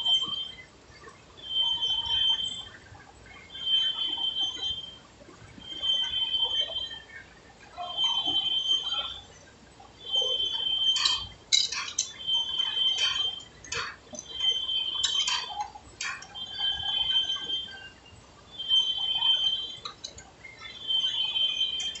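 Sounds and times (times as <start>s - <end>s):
lathe tool metallic ringing: 10.1s - 17.6s
metal clinks and knocks: 10.9s - 12.2s, 13.0s - 16.4s.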